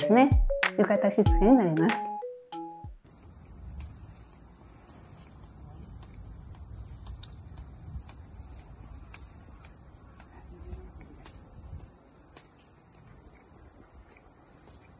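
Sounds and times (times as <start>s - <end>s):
faint ticks: 3.1s - 14.9s
high-pitched hiss: 3.1s - 14.9s.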